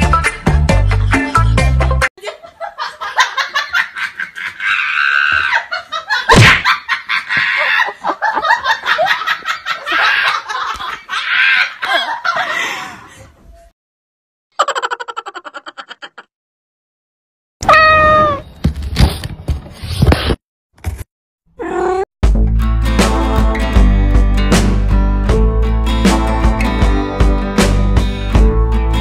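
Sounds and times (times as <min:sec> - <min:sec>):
music: 0:00.0 - 0:02.1, 0:22.2 - 0:29.0
people laughing: 0:02.2 - 0:13.2.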